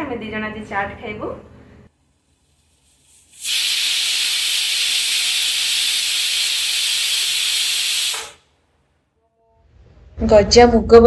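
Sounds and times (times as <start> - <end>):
pressure cooker steam hiss: 2.2 - 8.5.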